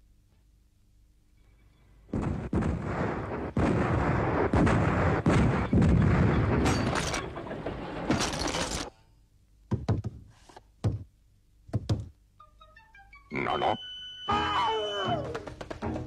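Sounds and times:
loud booms and crashing blasts: 0:02.1 - 0:07.3.

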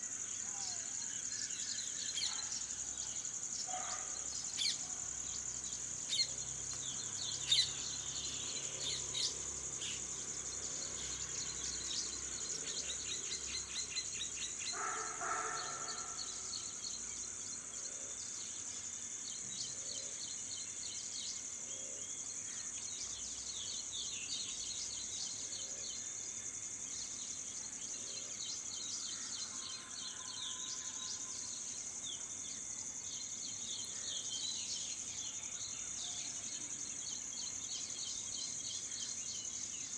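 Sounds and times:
crickets droning: 0:00.0 - 0:39.9
bird chirps: 0:06.0 - 0:17.1.

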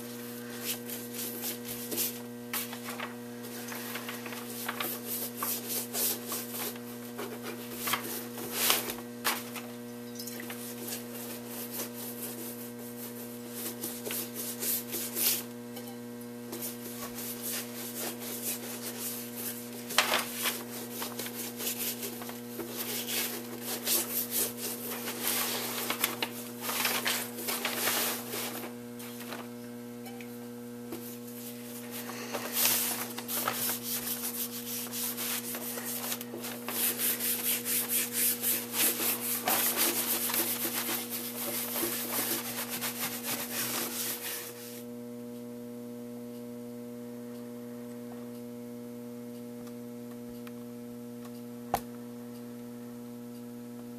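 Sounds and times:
steady electrical hum: 0:00.0 - 0:53.9
brush rubbing on leather: 0:10.7 - 0:15.5, 0:16.6 - 0:19.8, 0:20.4 - 0:26.1, 0:31.4 - 0:44.8.

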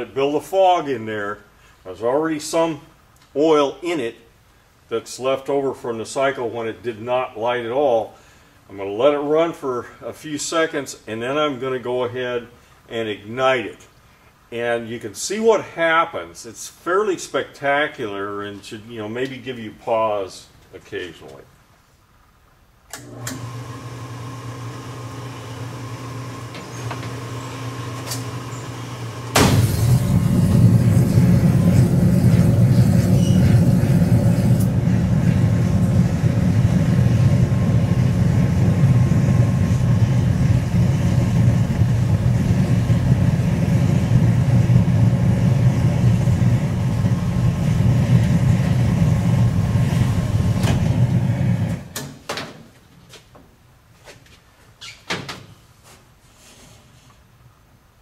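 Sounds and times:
oil burner humming: 0:22.9 - 0:52.0
fire roaring in chamber: 0:23.0 - 0:52.0
fuel igniting suddenly: 0:27.7 - 0:52.0.

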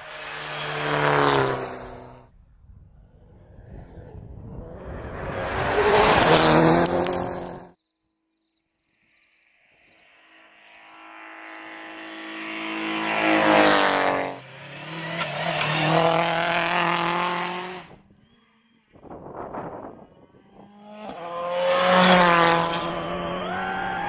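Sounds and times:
rally car passing at full throttle: 0:00.0 - 0:07.8, 0:10.1 - 0:24.0
rally car engine revving: 0:03.3 - 0:07.7, 0:11.1 - 0:24.0.

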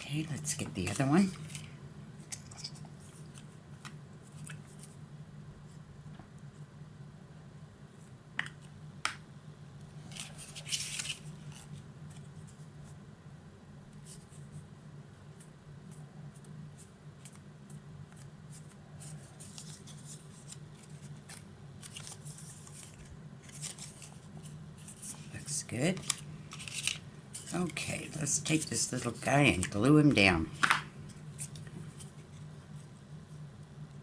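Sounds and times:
low steady hum: 0:00.0 - 0:34.0
paper rustling: 0:10.0 - 0:12.6, 0:15.4 - 0:29.8, 0:30.6 - 0:32.9.

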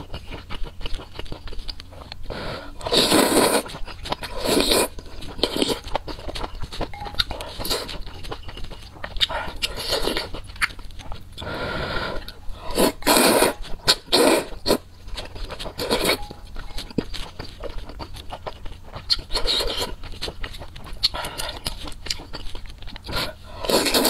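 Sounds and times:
chewing: 0:00.0 - 0:24.0
slurping noodles: 0:02.2 - 0:06.4, 0:11.4 - 0:16.2, 0:23.1 - 0:24.0.

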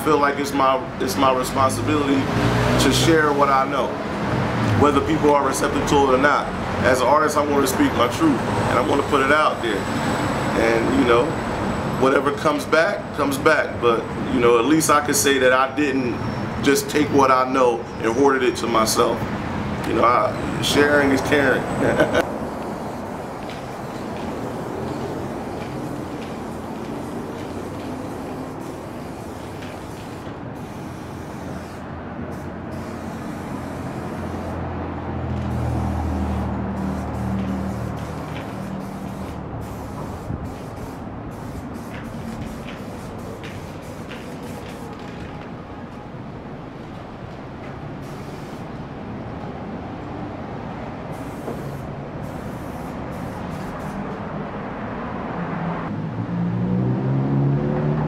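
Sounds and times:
street traffic noise: 0:00.0 - 0:58.0
vehicle engine humming: 0:19.2 - 0:56.0
spray paint can hissing: 0:22.0 - 0:34.6, 0:35.3 - 0:45.0, 0:48.0 - 0:48.7, 0:51.1 - 0:54.1.

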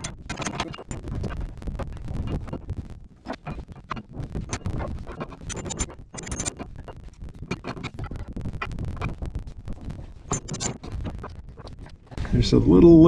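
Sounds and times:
steel parts scraping and clinking: 0:00.0 - 0:01.4, 0:03.2 - 0:12.2.

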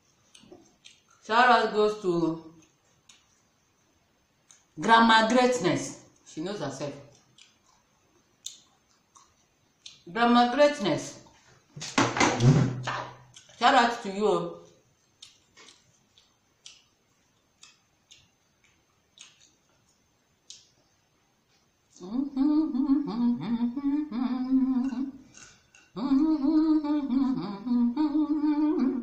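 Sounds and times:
woman humming: 0:22.0 - 0:25.3, 0:26.0 - 0:29.0.

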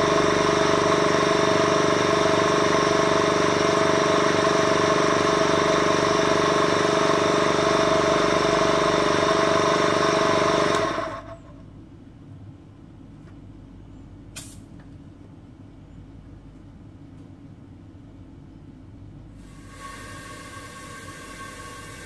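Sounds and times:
diaphragm vacuum pump humming: 0:00.0 - 0:11.6, 0:19.4 - 0:22.0.

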